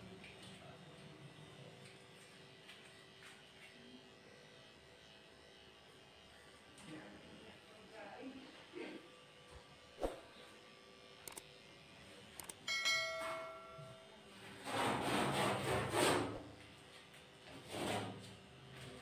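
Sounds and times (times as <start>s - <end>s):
electric dog clippers hum: 0.0s - 19.0s
quick clicks: 11.2s - 11.4s, 12.4s - 12.6s
ringing bell ding: 12.7s - 14.2s.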